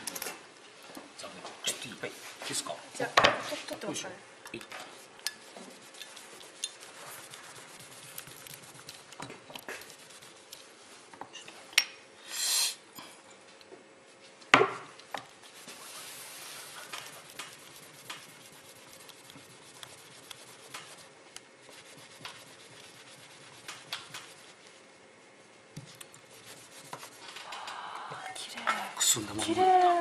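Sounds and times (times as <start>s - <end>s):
spray can hiss: 12.2s - 12.8s
sandpaper scraping metal: 15.6s - 21.1s.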